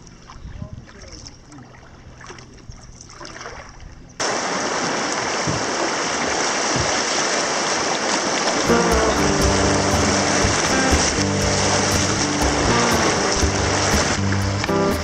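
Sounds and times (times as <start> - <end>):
calm river water: 0.0 - 15.0
river rapids rushing and splashing: 4.2 - 15.0.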